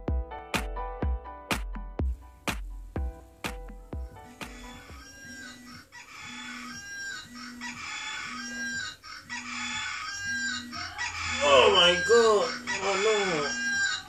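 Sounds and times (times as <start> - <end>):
chicken clucking alarm: 4.5 - 14.0.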